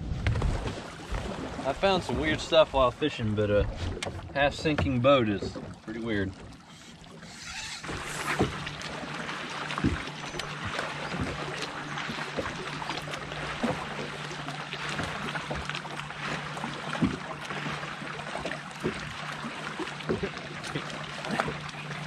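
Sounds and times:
water washing: 0.0 - 22.0
electric boat motor humming: 6.4 - 22.0.

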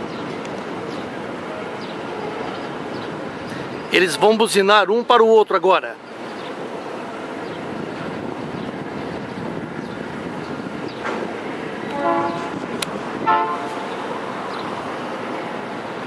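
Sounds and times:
trains running: 6.1 - 16.0
locomotive horns tooting: 11.9 - 13.9.

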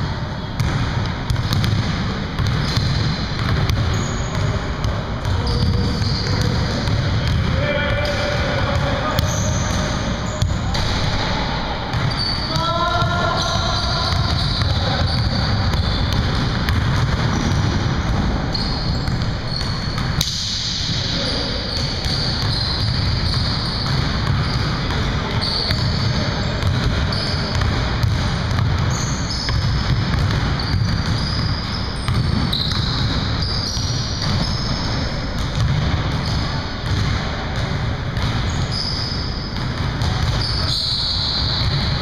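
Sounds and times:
basketballs bouncing: 0.0 - 42.0
sneaker squeaks: 0.0 - 42.0.

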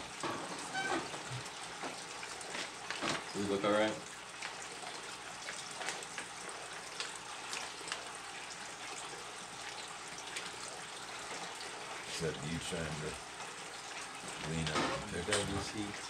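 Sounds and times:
aquarium filter water trickling: 0.0 - 16.0.

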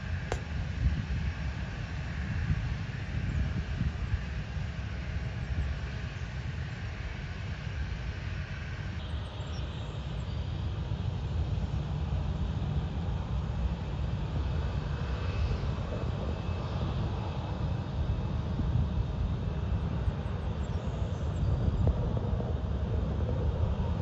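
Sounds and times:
jet engines rumbling and whining: 0.0 - 24.0.

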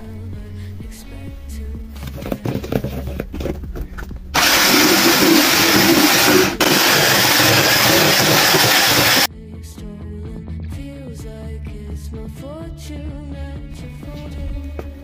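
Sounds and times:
electric hand mixer whirring: 4.4 - 9.3.

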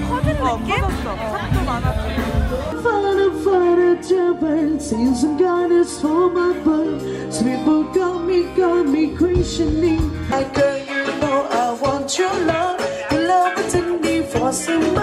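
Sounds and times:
drums with cymbal hits: 0.0 - 2.8, 9.4 - 15.0
woman singing: 0.0 - 6.7
bass: 0.0 - 15.0
keyboard: 0.0 - 15.0.

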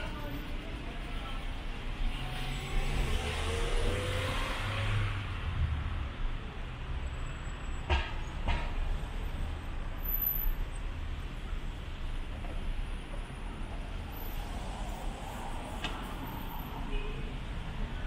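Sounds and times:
car engines in traffic: 0.0 - 18.0
vehicle accelerating: 2.1 - 6.0.

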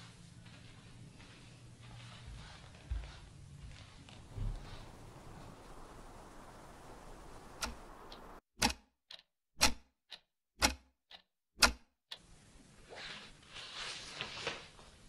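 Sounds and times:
wall clock ticking: 4.9 - 12.4.

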